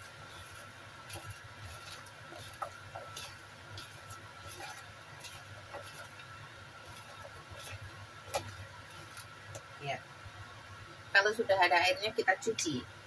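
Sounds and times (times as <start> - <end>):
vegetables squished by hand: 0.0 - 9.8.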